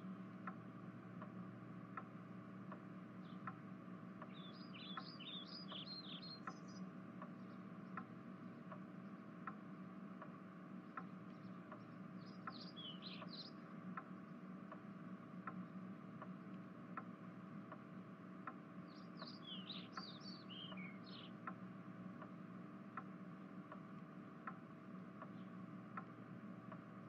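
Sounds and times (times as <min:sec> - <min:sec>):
steady low hum: 0:00.0 - 0:27.0
light ticks: 0:00.2 - 0:27.0
bird chirps: 0:04.2 - 0:09.3, 0:11.3 - 0:13.7, 0:18.8 - 0:21.4.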